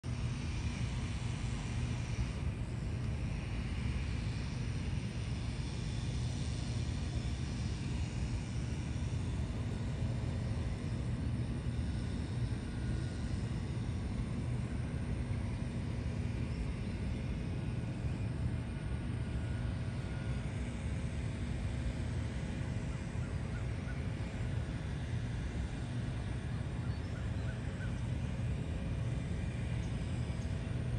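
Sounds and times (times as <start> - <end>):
faint even hum: 0.1 - 30.9.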